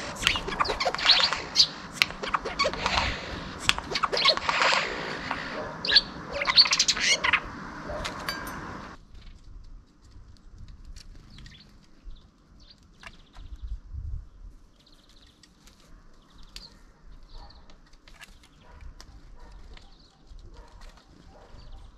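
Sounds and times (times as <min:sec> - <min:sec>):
bird pecking on wooden feeder: 0:00.0 - 0:06.8
faint bird chirps: 0:00.0 - 0:09.0.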